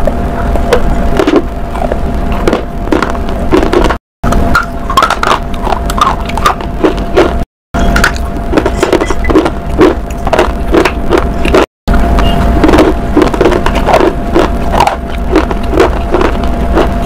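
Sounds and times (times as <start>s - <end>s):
low hum: 0.0s - 17.0s
crunchy food chewing: 8.2s - 11.7s, 12.6s - 17.0s.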